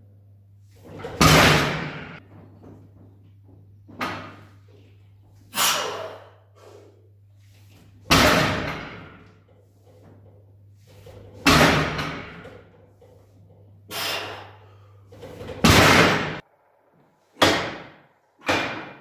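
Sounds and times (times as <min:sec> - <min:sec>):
barbell thudding on gym floor: 0:00.9 - 0:02.2, 0:08.0 - 0:09.2, 0:11.1 - 0:12.8, 0:15.2 - 0:16.4.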